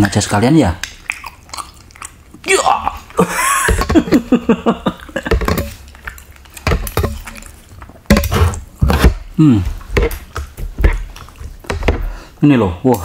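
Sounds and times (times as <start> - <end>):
cutlery clinking against a bowl: 5.3 - 8.5.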